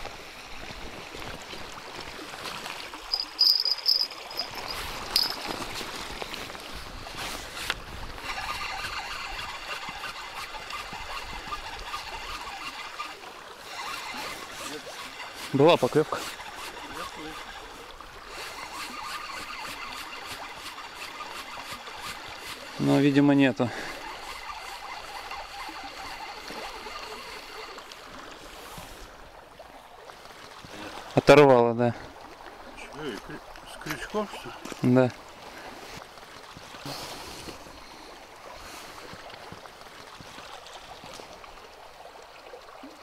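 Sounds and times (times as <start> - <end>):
river water lapping on pebbles: 0.0 - 43.0
fishing reel whirring: 3.0 - 5.7, 7.6 - 28.0.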